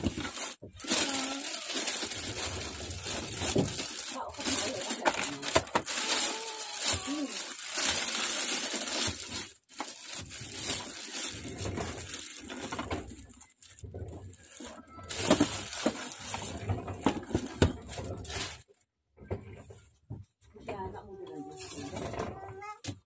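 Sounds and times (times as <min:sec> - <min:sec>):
plastic bag crinkling: 0:00.0 - 0:18.6.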